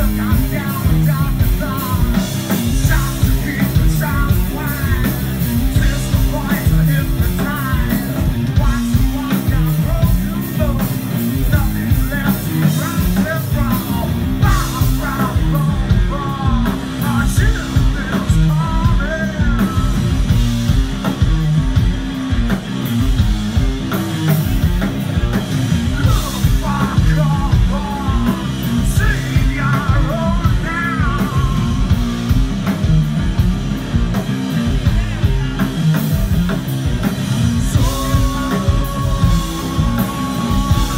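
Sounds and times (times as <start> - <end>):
person singing: 0.0 - 20.3, 25.8 - 32.0, 37.5 - 40.9
heavy rock band playing loud: 0.0 - 40.9.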